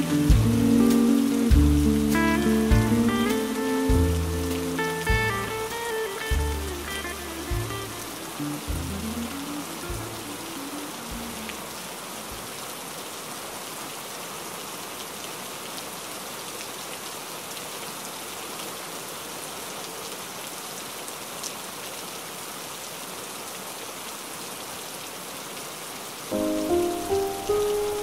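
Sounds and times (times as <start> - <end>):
rain on a window: 0.0 - 28.0.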